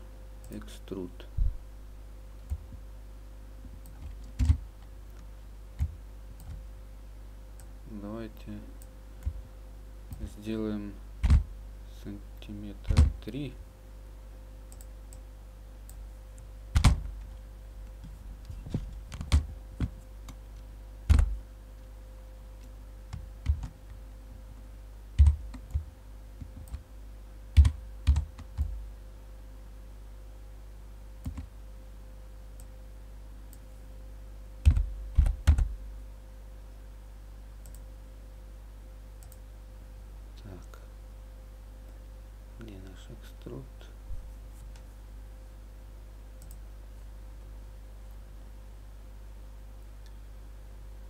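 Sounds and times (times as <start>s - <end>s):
steady low hum: 0.0s - 51.0s
keyboard and mouse clicking: 3.7s - 6.6s, 25.2s - 26.9s, 27.6s - 28.7s, 31.2s - 31.5s, 39.2s - 39.4s.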